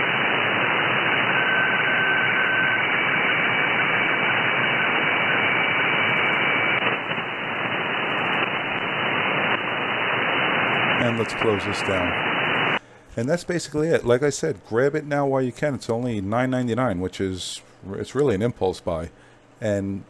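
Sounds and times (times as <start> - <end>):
faint high radio tone: 0.0 - 13.3
radio receiver hiss: 0.0 - 15.3.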